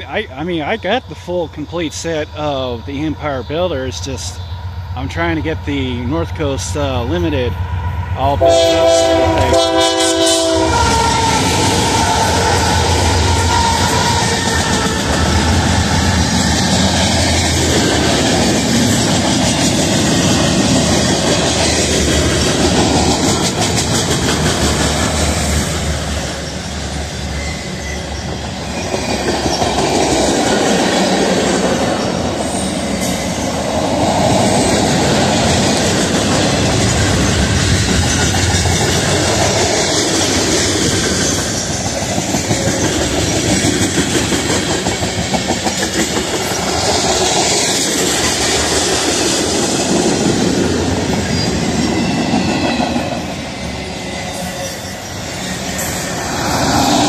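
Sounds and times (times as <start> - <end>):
freight train rumble: 0.0 - 57.0
wheels clattering over rail joints: 28.2 - 53.1.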